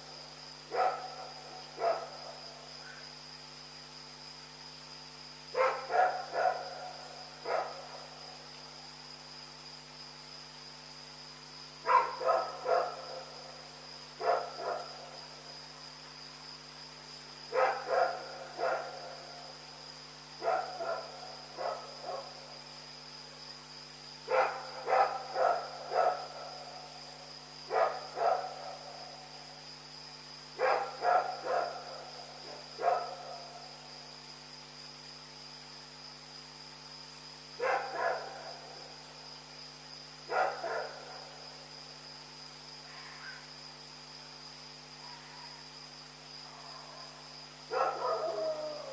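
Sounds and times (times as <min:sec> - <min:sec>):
dog barking: 0:00.7 - 0:02.4, 0:05.6 - 0:06.8, 0:07.4 - 0:07.9, 0:11.9 - 0:13.3, 0:14.2 - 0:15.0, 0:17.5 - 0:19.2, 0:20.4 - 0:22.4, 0:24.3 - 0:26.4, 0:27.7 - 0:28.8, 0:30.6 - 0:33.4, 0:37.6 - 0:38.4, 0:40.3 - 0:41.2, 0:47.7 - 0:48.9.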